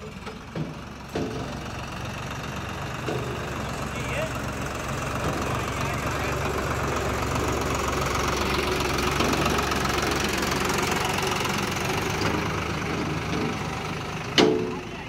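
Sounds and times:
tractor diesel engine running: 0:00.0 - 0:15.0.

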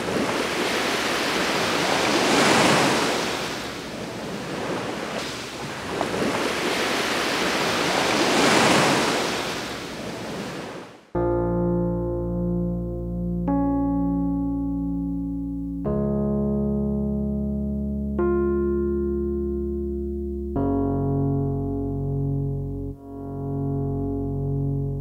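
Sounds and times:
surf washing up beach: 0:00.0 - 0:11.0
electric piano music: 0:11.2 - 0:25.0.

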